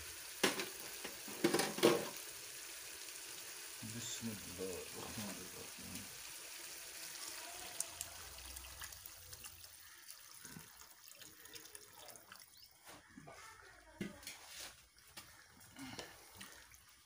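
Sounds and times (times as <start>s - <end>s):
water pouring into frying pan: 0.0s - 12.9s.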